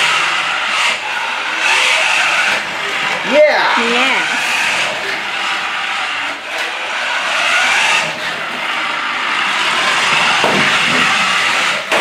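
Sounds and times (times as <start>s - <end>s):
toy car electric motor whirring: 0.0s - 12.0s
tyre noise on wooden floor: 9.4s - 12.0s.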